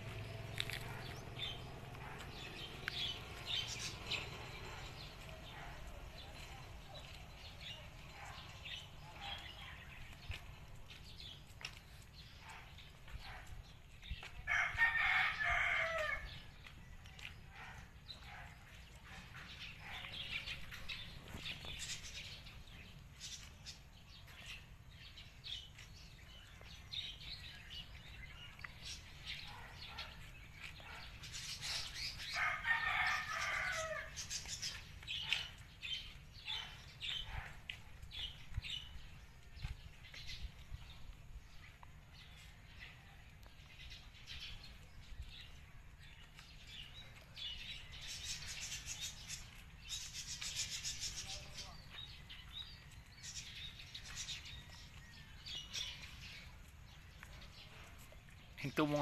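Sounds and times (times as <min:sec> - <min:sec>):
rooster crowing: 0:14.5 - 0:16.3, 0:32.4 - 0:34.1.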